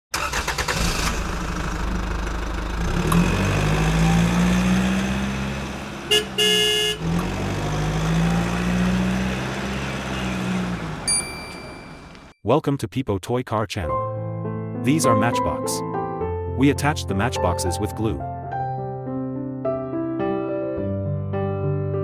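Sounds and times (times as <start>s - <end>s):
toy horn tooting: 6.1s - 7.0s
short high ring: 11.1s - 12.0s.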